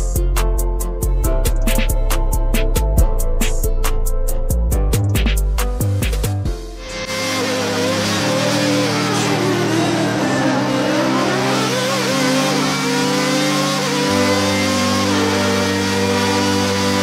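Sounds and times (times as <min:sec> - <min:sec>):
background music with bass: 0:00.0 - 0:17.0
racing car engine revving: 0:06.6 - 0:17.0.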